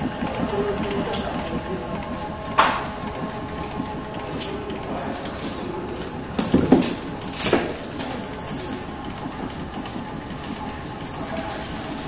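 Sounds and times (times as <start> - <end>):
machine knocks: 0.0 - 4.5, 6.0 - 8.2
machine motor hum with whine: 0.0 - 12.0.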